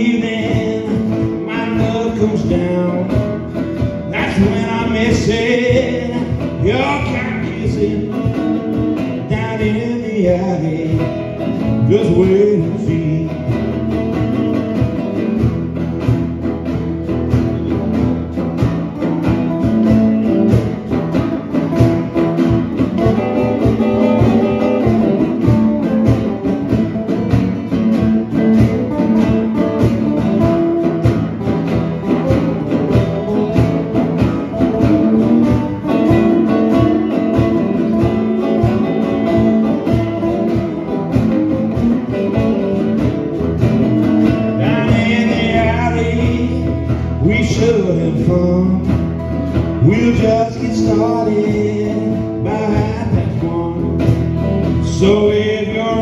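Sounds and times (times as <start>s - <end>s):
man singing: 0.0s - 15.3s, 32.0s - 56.0s
electric guitar strumming: 0.0s - 56.0s.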